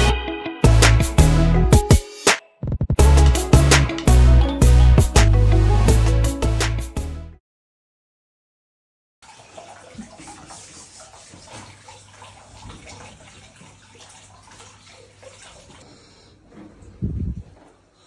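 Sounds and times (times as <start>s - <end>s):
water pouring into bath: 9.2s - 15.8s.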